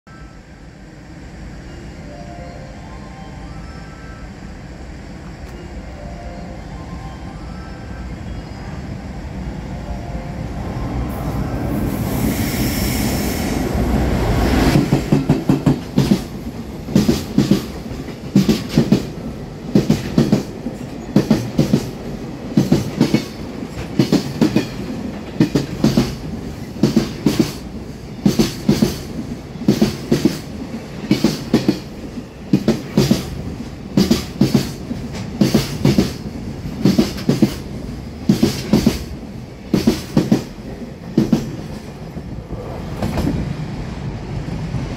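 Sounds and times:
electric locomotive passing: 0.1 - 44.9
train wheels clacking over rail joints: 14.7 - 27.6, 28.2 - 41.9.

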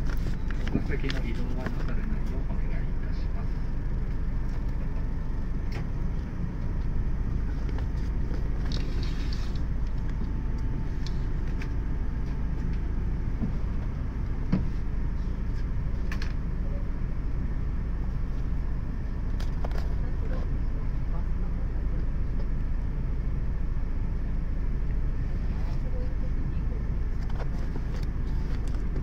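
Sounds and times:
bus engine idling: 0.0 - 29.0.

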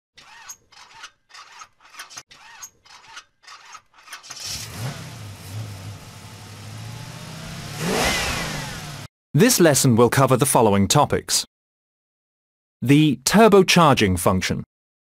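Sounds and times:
car engine cranking and idling: 4.3 - 9.1.

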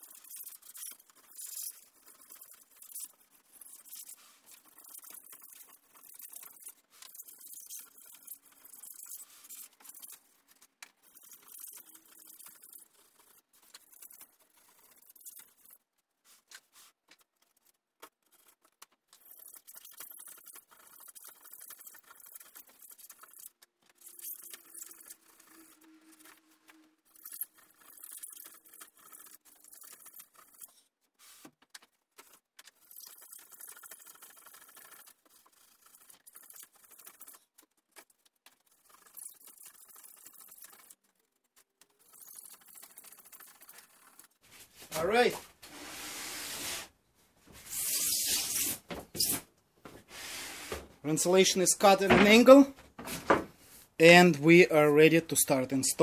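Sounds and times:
knife scraping foam board: 44.8 - 46.9, 47.5 - 49.5.

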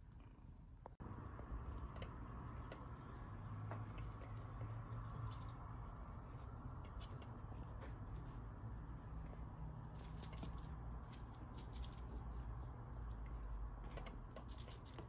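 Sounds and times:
kitten claws scratching yarn basket: 9.8 - 13.2, 13.9 - 15.0.

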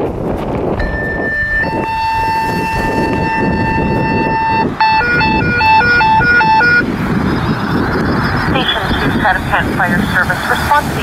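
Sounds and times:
wind noise: 0.0 - 11.0
warbling alert tone: 0.8 - 6.8
two-tone radio page: 8.2 - 11.0.

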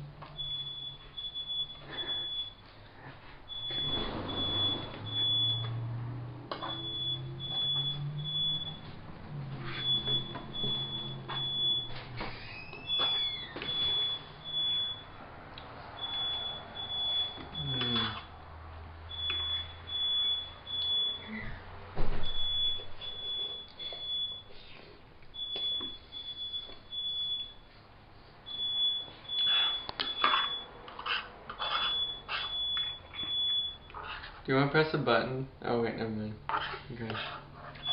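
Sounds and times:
smoke alarm beeping: 0.2 - 2.8, 3.5 - 5.9, 6.6 - 15.2, 16.0 - 18.1, 19.1 - 21.3, 22.0 - 24.5, 25.3 - 27.7, 28.4 - 30.8, 31.8 - 34.0
loud thump: 22.0 - 22.4.

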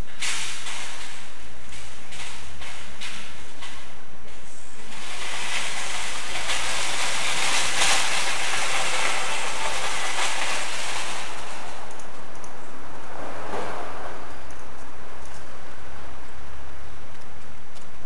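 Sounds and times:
loud rushing hiss: 0.0 - 12.0.

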